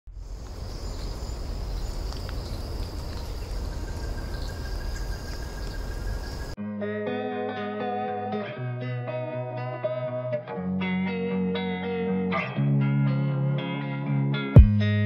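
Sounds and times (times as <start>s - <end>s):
faint clicks: 2.0s - 3.7s
electric guitar music: 6.6s - 15.0s.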